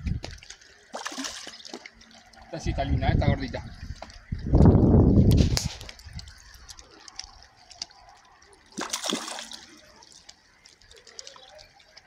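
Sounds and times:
water dripping and trickling: 0:00.0 - 0:12.0
fish splashing into water: 0:00.2 - 0:02.5, 0:05.6 - 0:11.8.

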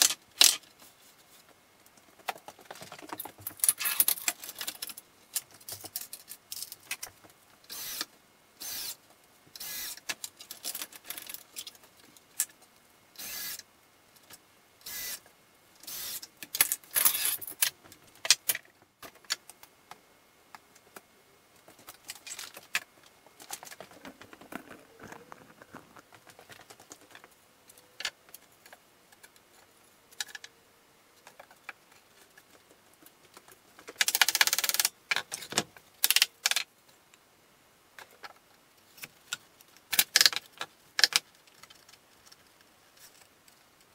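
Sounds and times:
wooden parts knocking: 0:23.4 - 0:27.3.

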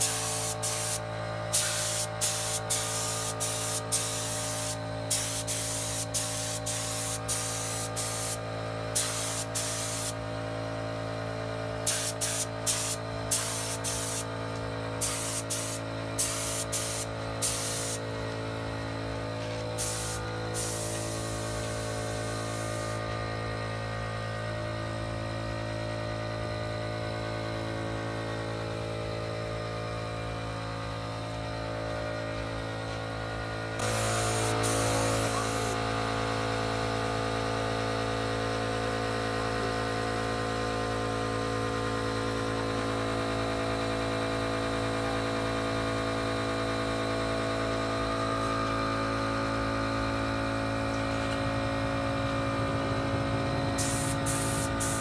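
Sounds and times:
paint spray gun hissing: 0:00.0 - 0:10.2, 0:11.8 - 0:14.4, 0:15.0 - 0:18.1, 0:19.4 - 0:23.2, 0:33.8 - 0:36.4, 0:53.4 - 0:55.0
steady machine hum: 0:00.0 - 0:55.0.

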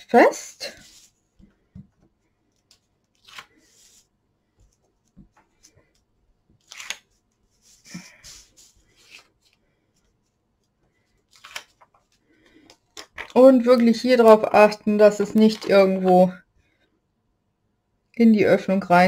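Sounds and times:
paper rustling and rubbing: 0:06.6 - 0:10.4.

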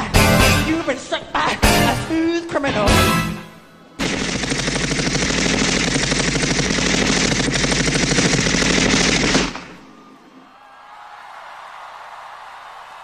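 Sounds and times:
machine-gun sound effect: 0:04.0 - 0:10.1.

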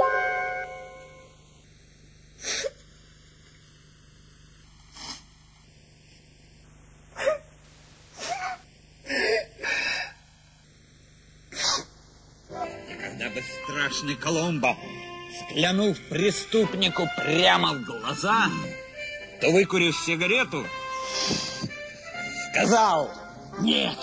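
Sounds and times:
woman sobbing and sniffling: 0:07.2 - 0:07.5, 0:08.2 - 0:10.3, 0:21.0 - 0:21.7.

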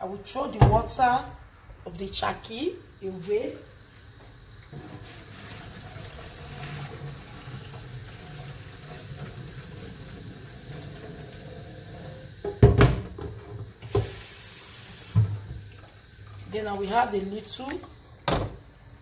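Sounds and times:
running water hiss: 0:00.0 - 0:19.0
water pouring into steel sink: 0:04.6 - 0:12.8, 0:13.8 - 0:18.1.

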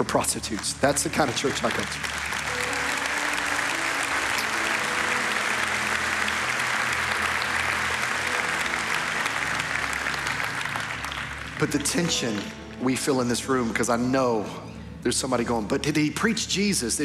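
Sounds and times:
congregation applauding: 0:00.0 - 0:13.3.

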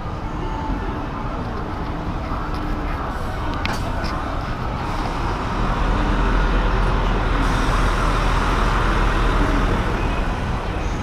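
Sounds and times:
car and truck engines rumbling: 0:00.0 - 0:11.0.

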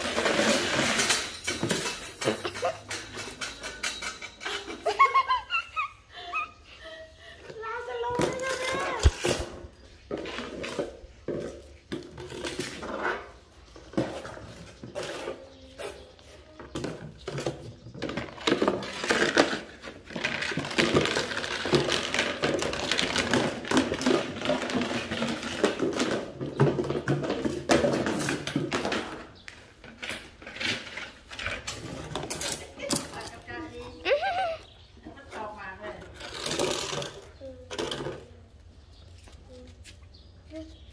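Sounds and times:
plastic basket scraping on tile: 0:00.0 - 0:02.8, 0:08.1 - 0:33.9, 0:35.4 - 0:38.2.

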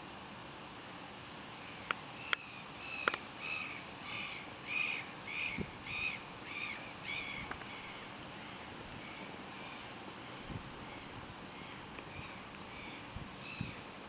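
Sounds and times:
animal high-pitched calls: 0:02.8 - 0:08.2, 0:09.0 - 0:13.9
sharp clicks: 0:03.0 - 0:03.2.

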